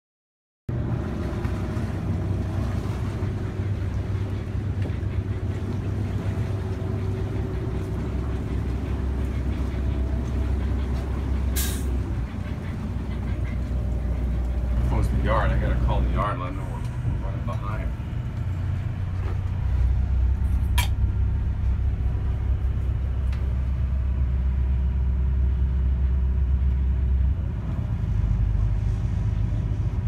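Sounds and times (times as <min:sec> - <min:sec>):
diesel engine idling: 0:00.8 - 0:30.0.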